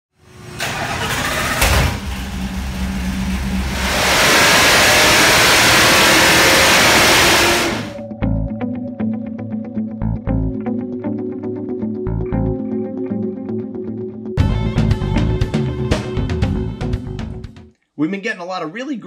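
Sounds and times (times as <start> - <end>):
engine revving on a dyno: 0.2 - 8.0
plucked bass music: 7.9 - 17.7.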